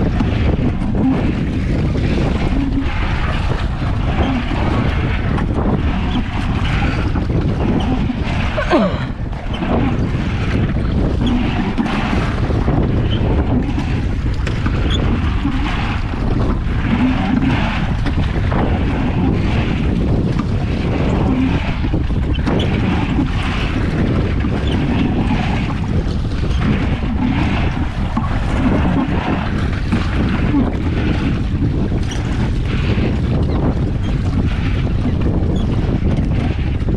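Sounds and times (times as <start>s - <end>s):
water splashing against hull: 0.0s - 36.9s
wind buffeting microphone: 0.0s - 36.9s.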